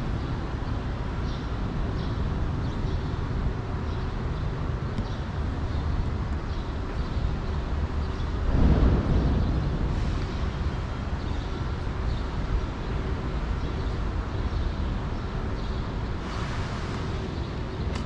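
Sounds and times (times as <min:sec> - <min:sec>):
low traffic rumble: 0:00.0 - 0:18.0.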